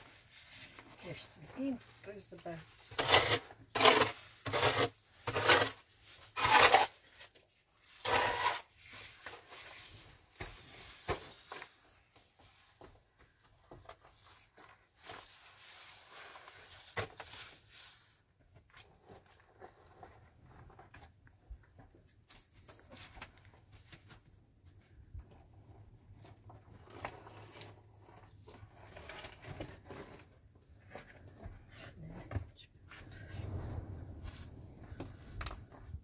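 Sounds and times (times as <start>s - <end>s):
rough scraping strokes: 2.8s - 7.2s, 7.9s - 10.2s.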